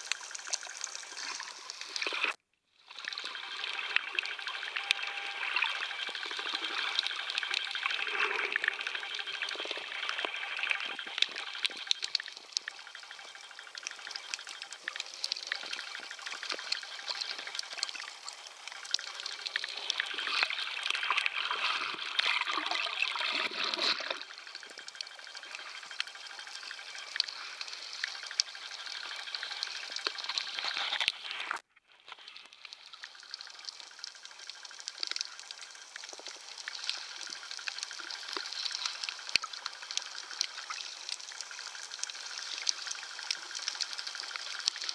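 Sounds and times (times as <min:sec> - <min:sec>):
muffled underwater hiss: 0:00.0 - 0:44.9
underwater crackles and bubbles: 0:00.0 - 0:44.9.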